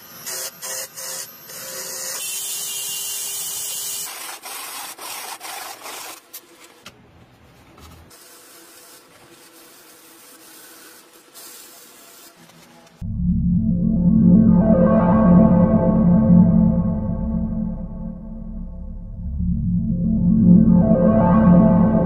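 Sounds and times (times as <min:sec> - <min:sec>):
sandpaper rasping on spinning wood: 0:03.6 - 0:06.2, 0:08.1 - 0:12.6.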